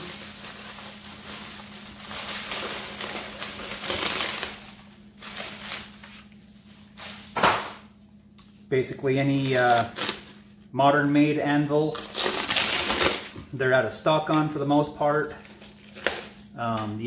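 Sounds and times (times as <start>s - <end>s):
plastic wrapping crinkling: 0.0s - 7.4s, 9.0s - 10.6s, 11.5s - 13.5s, 15.4s - 16.5s.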